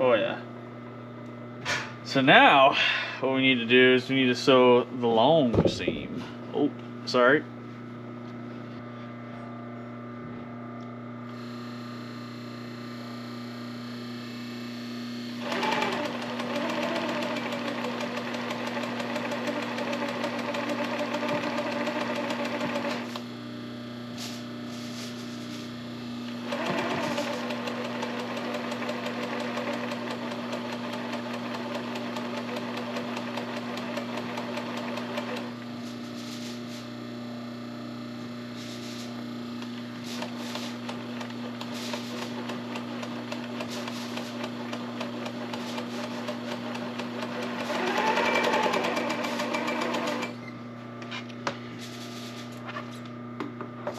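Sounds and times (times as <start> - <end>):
steady low hum: 0.0 - 15.4
sewing machine stitching: 15.4 - 23.2, 26.4 - 35.6, 40.1 - 50.4.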